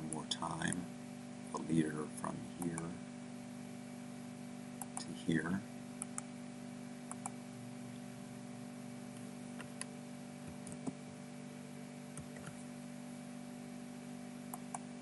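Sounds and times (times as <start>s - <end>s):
low electrical hum: 0.0s - 15.0s
mouse clicks: 7.1s - 7.4s.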